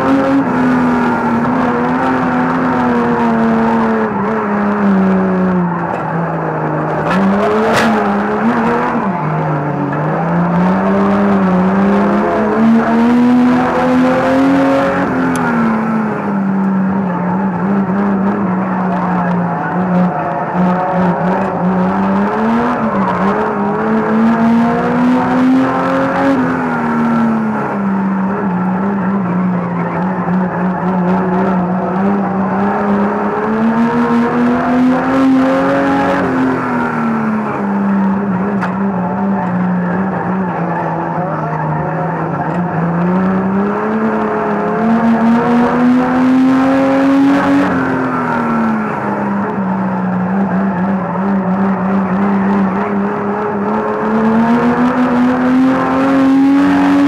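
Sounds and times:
racing car engine: 0.0 - 57.0.

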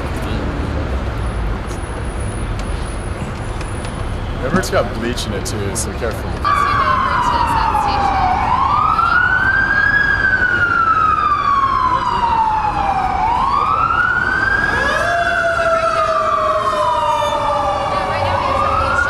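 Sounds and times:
emergency vehicle siren wailing: 6.4 - 19.0
lower siren: 6.4 - 19.0.

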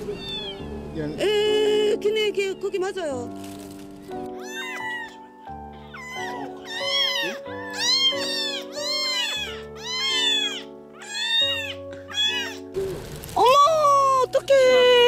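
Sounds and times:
kittens meowing: 0.0 - 3.2, 4.2 - 12.8.

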